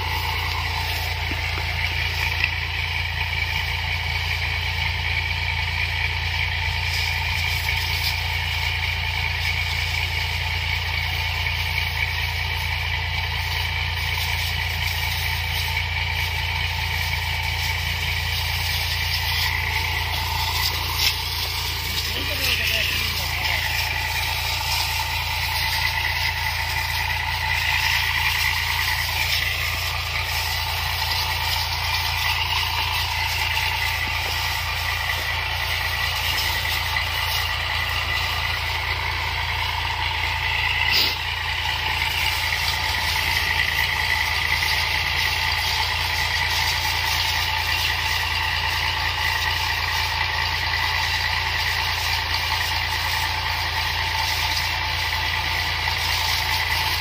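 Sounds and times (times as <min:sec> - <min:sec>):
spray jet hissing: 0:00.0 - 0:04.3, 0:12.2 - 0:50.1
power sprayer engine running: 0:00.0 - 0:57.0.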